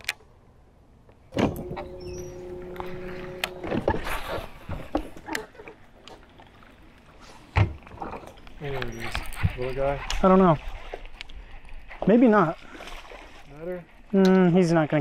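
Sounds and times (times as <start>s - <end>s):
small electric motor whirring: 1.4s - 4.6s.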